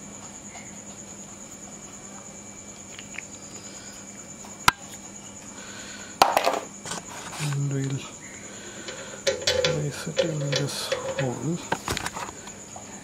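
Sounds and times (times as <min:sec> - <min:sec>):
high insect trill: 0:00.0 - 0:13.0
light clicks of metal parts: 0:08.8 - 0:12.5
metallic clattering and knocking: 0:08.9 - 0:11.9.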